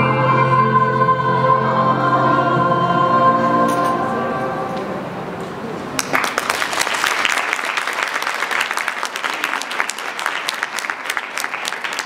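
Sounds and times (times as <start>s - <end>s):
choir singing: 0.0s - 5.4s
audience applauding: 5.9s - 12.0s.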